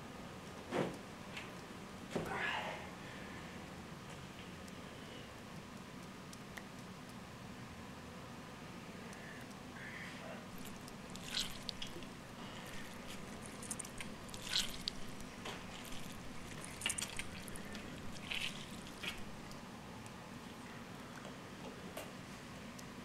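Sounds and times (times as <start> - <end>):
low room hum: 0.0 - 23.0
licking and sucking fingers: 10.5 - 20.2.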